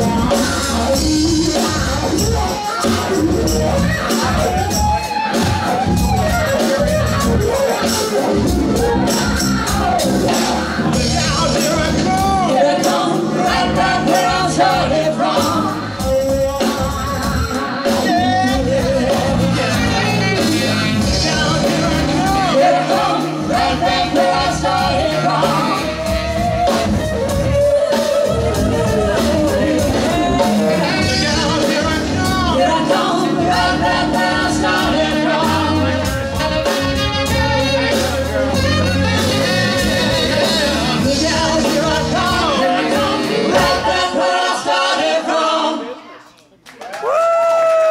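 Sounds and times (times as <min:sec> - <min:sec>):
electric guitar: 0:00.0 - 0:43.8
bass guitar: 0:00.0 - 0:44.7
drums: 0:00.0 - 0:45.7
man singing lead: 0:00.0 - 0:46.1.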